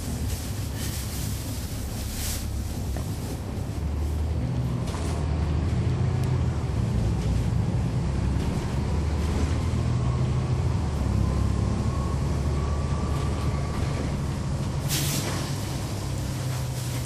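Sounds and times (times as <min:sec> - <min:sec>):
bus diesel engine running: 0:00.0 - 0:17.0
brief air hiss: 0:14.9 - 0:15.6.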